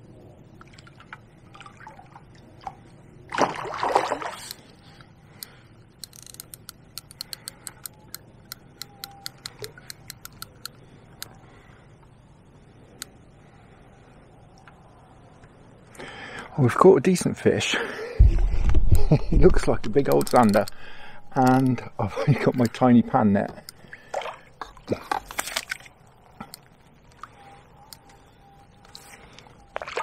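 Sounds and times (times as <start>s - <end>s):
fish splashing at the surface: 3.3s - 4.5s
fishing reel clicking: 6.0s - 10.8s, 20.0s - 20.8s.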